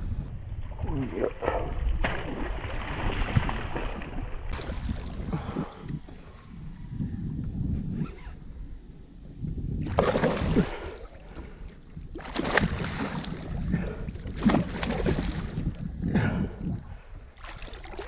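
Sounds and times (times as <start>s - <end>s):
fish thrashing and splashing water: 2.0s - 5.6s, 9.9s - 11.2s, 12.1s - 15.7s, 17.4s - 18.0s.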